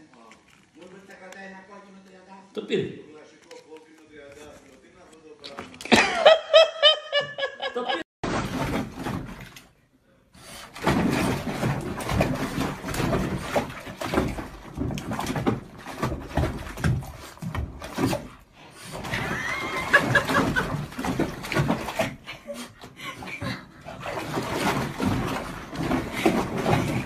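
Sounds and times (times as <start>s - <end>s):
water splashing in bathtub: 8.2s - 9.8s, 10.4s - 27.0s.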